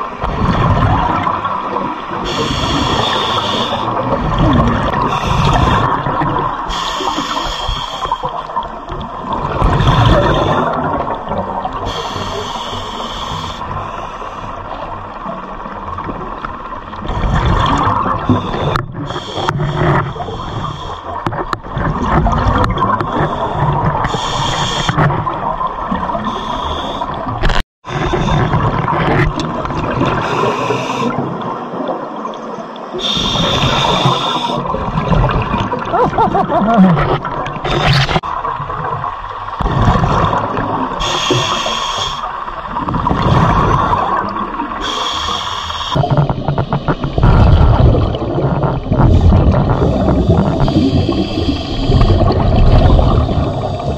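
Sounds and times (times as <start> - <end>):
exhaled bubbles rumbling: 0.0 - 7.4, 8.2 - 12.6, 13.2 - 41.6, 42.3 - 45.0, 45.8 - 53.9
regulator hiss on inhale: 2.2 - 3.9, 6.7 - 8.4, 11.9 - 14.6, 18.3 - 21.2, 23.2 - 25.0, 26.2 - 27.2, 30.2 - 31.2, 33.0 - 34.6, 41.0 - 42.4, 44.8 - 46.0, 49.8 - 52.3.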